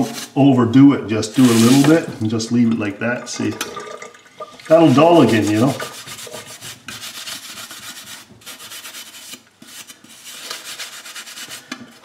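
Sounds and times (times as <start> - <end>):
steel wool scrubbing metal: 1.3 - 2.3, 4.6 - 12.0.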